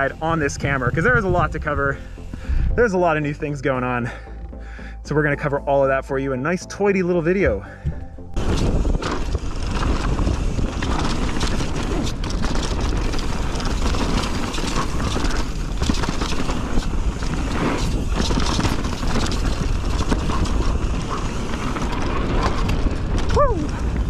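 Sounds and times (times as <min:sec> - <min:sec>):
wind rumble on microphone: 0:00.0 - 0:03.5, 0:07.7 - 0:24.0
bike clattering over rough ground: 0:08.4 - 0:24.0.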